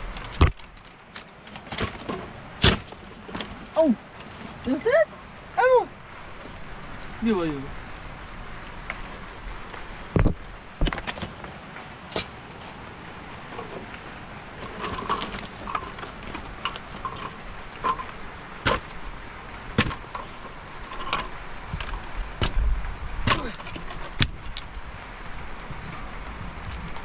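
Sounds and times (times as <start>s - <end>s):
low rumble: 13.1s - 27.0s
sharp knocks and clatters: 13.5s - 19.0s, 19.7s - 24.7s.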